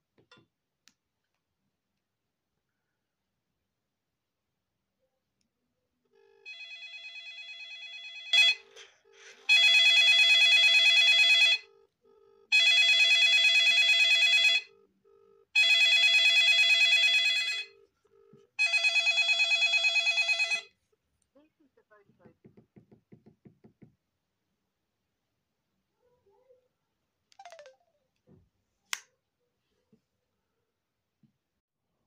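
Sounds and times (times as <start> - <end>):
phone ringtone pulsing tones: 6.5 - 11.7, 12.4 - 17.9, 18.6 - 20.7, 27.4 - 28.0.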